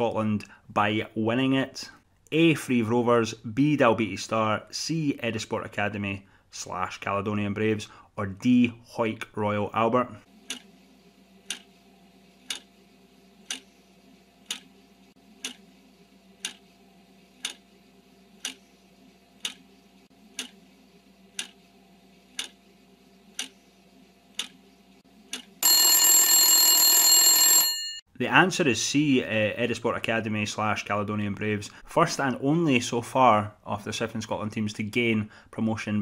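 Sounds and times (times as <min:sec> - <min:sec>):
clock ticking: 0:11.5 - 0:11.7, 0:12.5 - 0:12.7, 0:13.4 - 0:13.7, 0:15.4 - 0:15.6, 0:16.4 - 0:16.6, 0:17.4 - 0:17.6, 0:18.4 - 0:18.6, 0:19.4 - 0:19.6, 0:20.3 - 0:20.6, 0:21.3 - 0:21.6, 0:22.4 - 0:22.6, 0:23.4 - 0:23.6, 0:24.4 - 0:24.6
loud alarm: 0:25.6 - 0:28.0.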